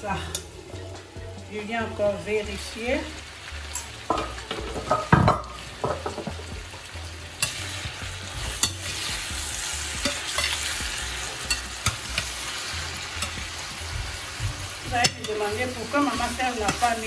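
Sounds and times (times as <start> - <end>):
food sizzling in a pan: 0.0 - 17.0
metal spoon scraping a pan: 7.4 - 13.6.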